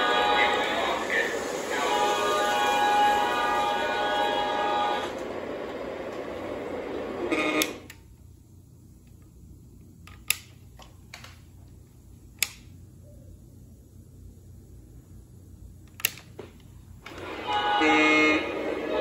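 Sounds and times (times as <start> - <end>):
electronic train horn: 0.0 - 5.4, 7.2 - 8.0, 17.1 - 19.0
model train running on track: 0.0 - 7.9, 17.1 - 19.0.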